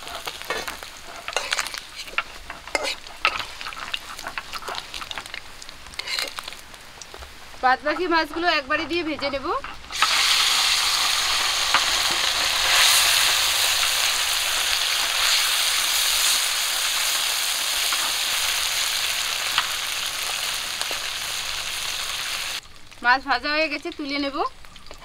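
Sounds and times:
fish sizzling in hot oil: 0.0s - 25.0s.

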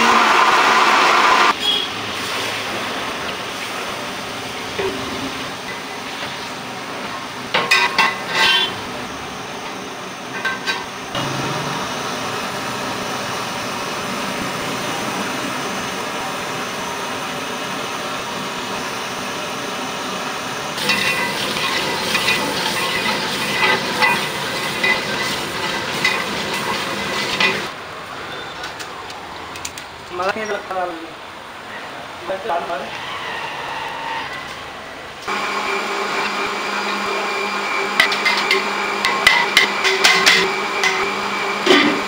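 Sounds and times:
metal ladle clinking and scraping: 7.6s - 8.8s, 20.8s - 27.7s
gravy sizzling in pot: 20.7s - 27.8s.

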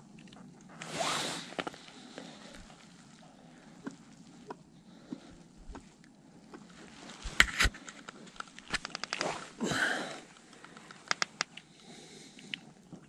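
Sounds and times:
light clicks: 10.5s - 11.7s.

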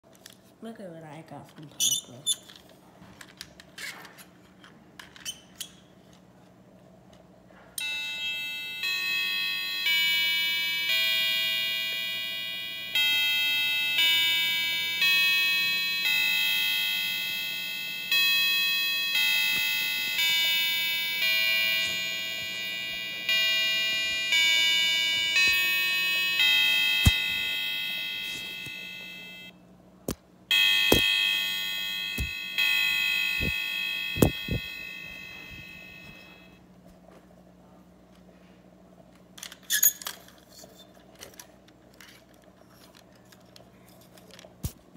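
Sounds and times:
clock chime bell-like notes: 7.8s - 29.5s, 30.5s - 36.6s.

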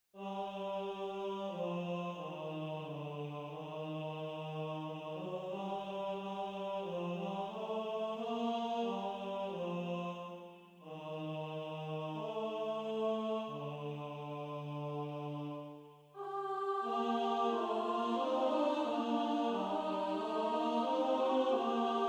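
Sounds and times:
synthesized singing voice: 16.2s - 22.0s.

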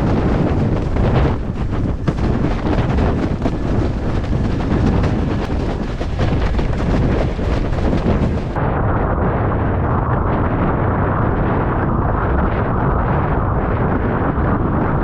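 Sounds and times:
knocks from choppy water: 0.0s - 8.6s
water rushing and slapping: 0.0s - 8.6s
wind buffeting microphone: 0.0s - 15.0s.

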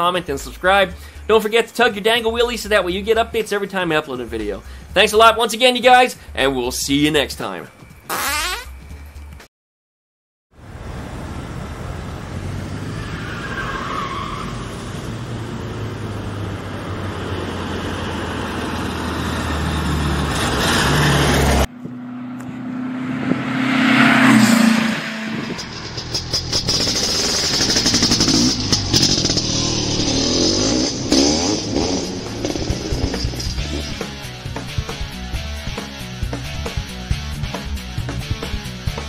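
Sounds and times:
passing vehicle: 10.6s - 34.7s
car engine running: 21.4s - 38.6s.

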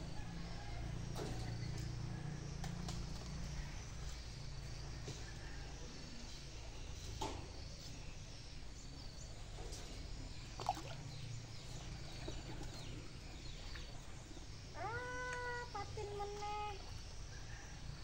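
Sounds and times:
faint high insect chirping: 0.0s - 18.0s.

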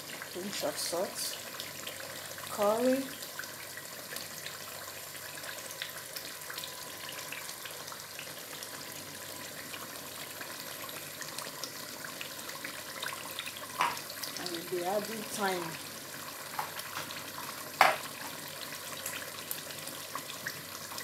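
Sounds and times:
stew simmering hiss: 0.0s - 21.0s.

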